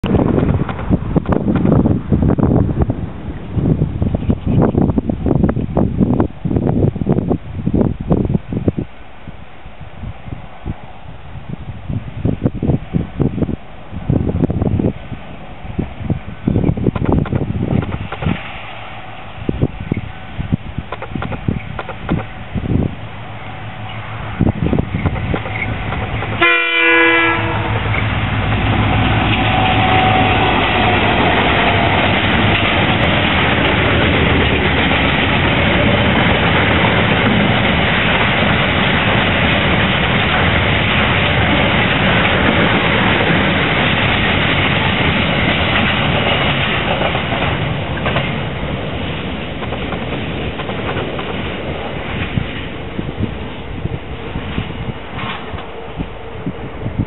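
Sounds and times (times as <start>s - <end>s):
freight train wagons rumbling: 0.0s - 57.0s
locomotive horn blast: 26.4s - 32.1s.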